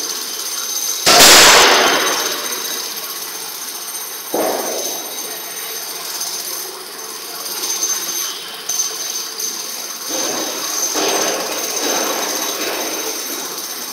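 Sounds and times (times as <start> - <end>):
machinery din: 1.1 - 3.0.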